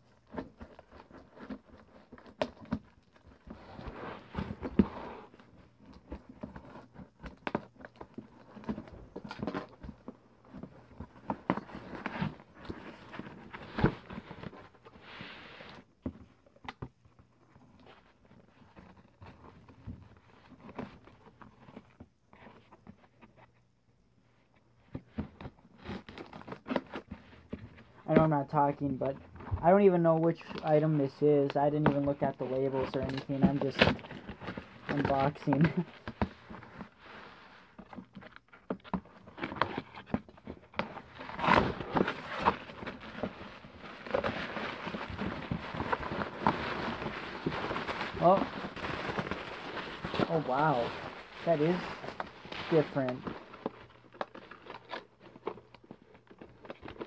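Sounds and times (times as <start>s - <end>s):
cardboard box being opened: 0.2s - 15.9s, 31.7s - 57.0s
plastic wrapping rustling: 25.7s - 57.0s.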